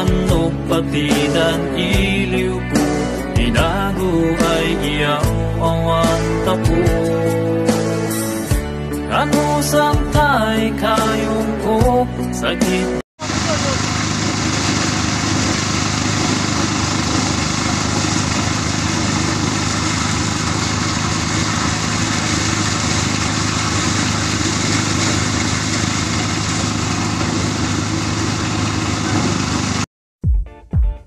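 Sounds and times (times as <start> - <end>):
engine drone: 13.2 - 29.9
threshing machine rushing: 13.2 - 29.9.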